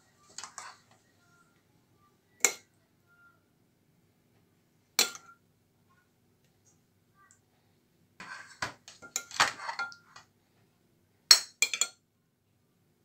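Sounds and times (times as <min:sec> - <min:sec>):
metal spoon clinking on dish: 0:05.0 - 0:05.4, 0:08.2 - 0:10.2, 0:11.3 - 0:12.0.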